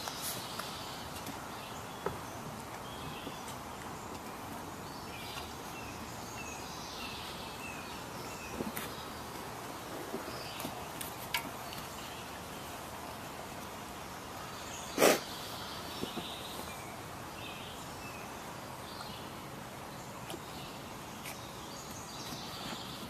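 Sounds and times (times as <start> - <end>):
steady background noise: 0.0 - 23.0.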